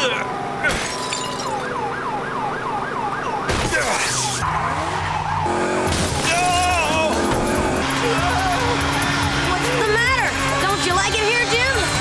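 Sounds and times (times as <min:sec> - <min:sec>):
falling siren-like warble: 0:00.0 - 0:07.0.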